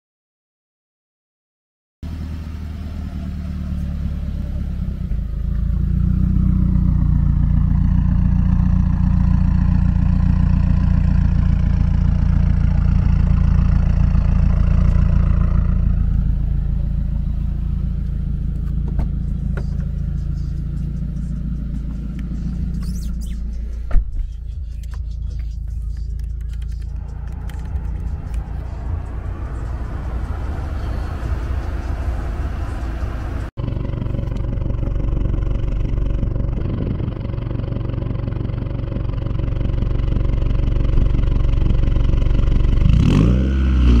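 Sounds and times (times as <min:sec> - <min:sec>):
car engine running: 0:02.0 - 0:44.0
clicks: 0:24.6 - 0:28.4.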